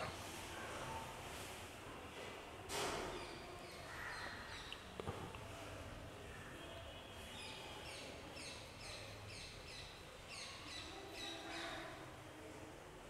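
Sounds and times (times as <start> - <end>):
faint low background noise: 0.0 - 13.0.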